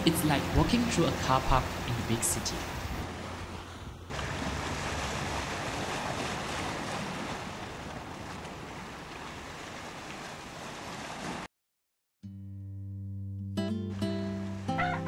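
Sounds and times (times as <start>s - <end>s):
water noise: 0.0s - 11.5s.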